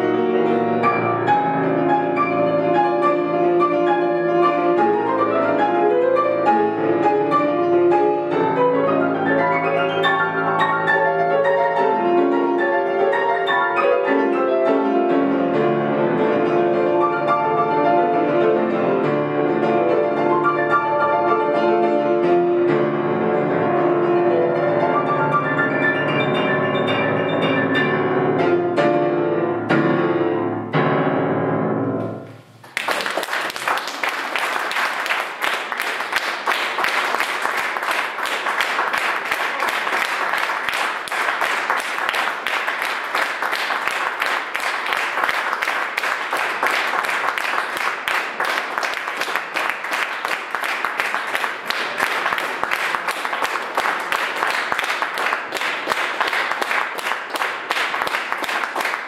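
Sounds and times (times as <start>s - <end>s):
grand piano playing: 0.0s - 32.6s
audience applause: 32.6s - 59.0s.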